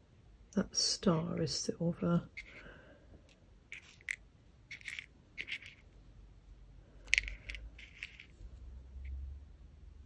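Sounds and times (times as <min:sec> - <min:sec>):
metal earrings clinking: 0:03.7 - 0:06.0, 0:07.0 - 0:09.2.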